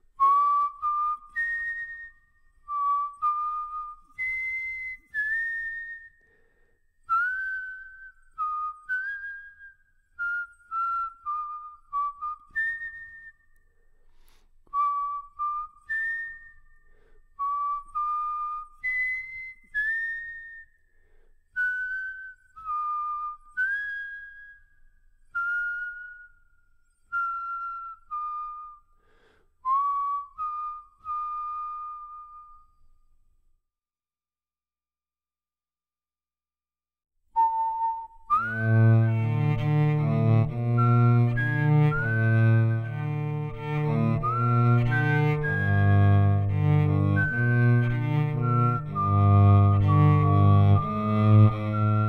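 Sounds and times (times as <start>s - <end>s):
solo cello melody: 38.3s - 52.0s.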